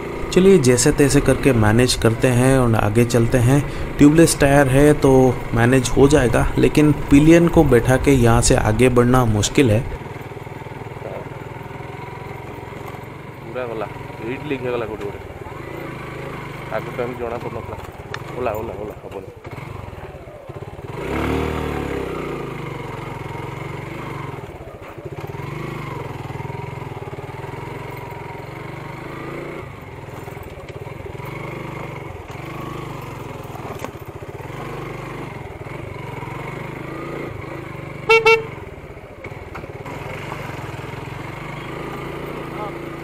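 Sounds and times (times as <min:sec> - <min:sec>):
motorcycle engine revving: 0:00.0 - 0:43.0
horn beeps: 0:38.1 - 0:38.6.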